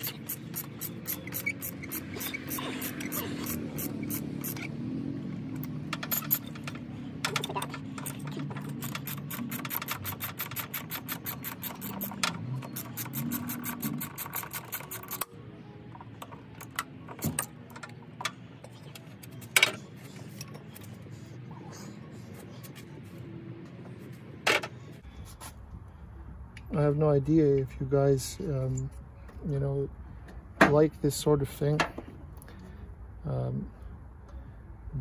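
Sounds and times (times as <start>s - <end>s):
socket ratchet wrench clicking: 0.0s - 4.7s, 5.6s - 15.3s.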